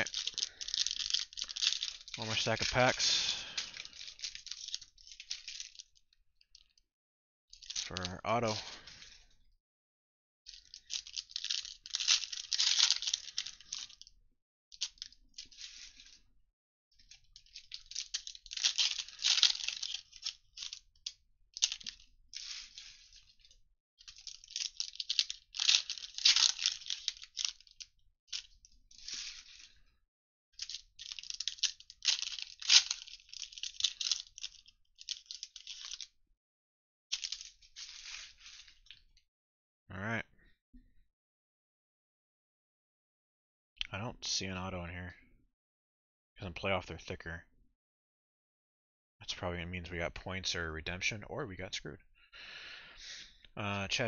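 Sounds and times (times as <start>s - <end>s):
foil wrappers tearing and crinkling: 0.0s - 5.8s, 10.6s - 14.0s, 17.5s - 20.8s, 24.1s - 27.8s, 30.6s - 36.0s, 37.2s - 38.8s.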